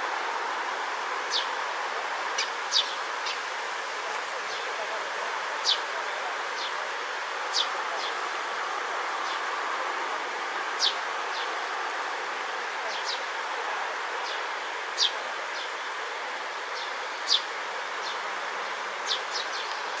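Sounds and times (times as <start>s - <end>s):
steady background hiss: 0.0s - 20.0s
sparrow chirping: 7.5s - 8.1s.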